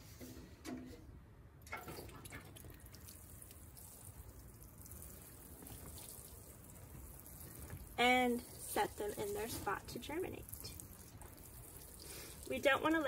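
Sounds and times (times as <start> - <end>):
water sprinkling onto soil: 1.9 - 13.0.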